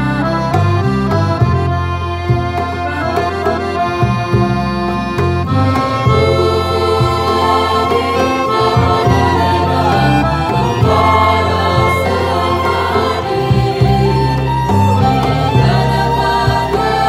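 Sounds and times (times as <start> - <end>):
electronic keyboard: 0.0 - 17.0
violin: 0.0 - 17.0
women singing together: 5.7 - 17.0.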